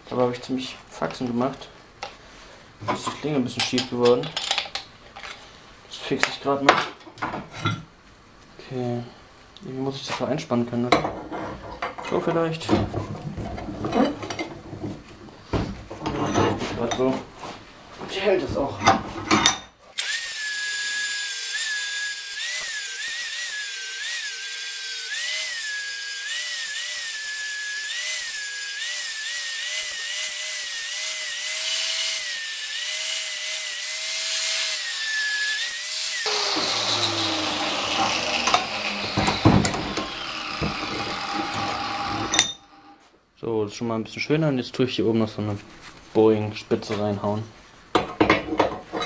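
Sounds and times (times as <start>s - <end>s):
angle grinder grinding steel: 20.0s - 43.0s
tool and work knocking: 36.2s - 42.8s.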